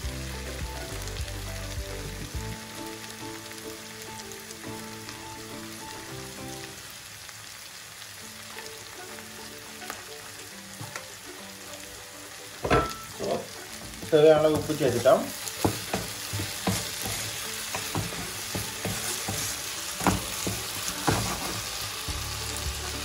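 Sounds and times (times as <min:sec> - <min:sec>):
soft background melody: 0:00.0 - 0:06.8, 0:08.2 - 0:23.0
food sizzling in oil: 0:00.0 - 0:23.0
spatula stirring and scraping: 0:12.8 - 0:22.1.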